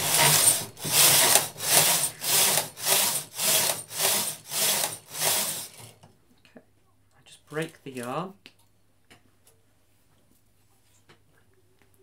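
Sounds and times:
knitting machine carriage rasping: 0.0s - 5.9s.

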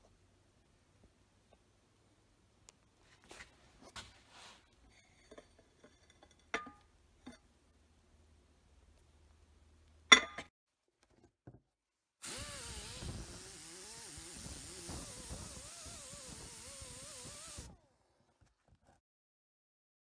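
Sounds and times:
wire brush grinder scrubbing metal: 12.2s - 17.8s.

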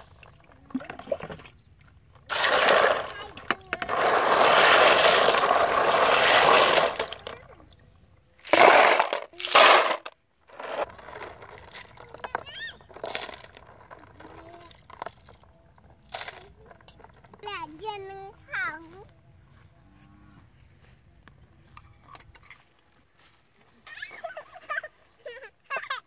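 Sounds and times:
water sloshing in basin: 0.0s - 15.5s
snail shells clattering: 2.3s - 7.4s, 8.4s - 17.2s.

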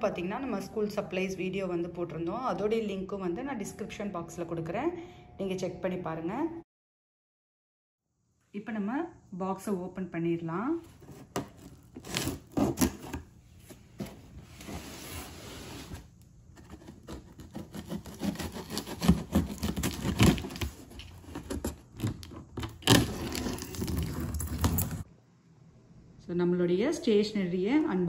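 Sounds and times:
tool slitting packing tape: 11.1s - 13.2s, 16.6s - 25.0s.

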